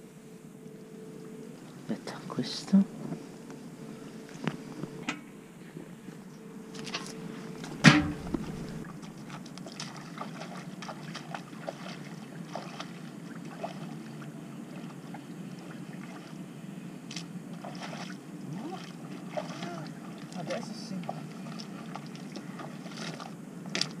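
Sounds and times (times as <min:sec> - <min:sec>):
boots squelching through water and mud: 0:06.8 - 0:16.4, 0:17.1 - 0:24.0
valve box lid banging shut: 0:07.8 - 0:08.4.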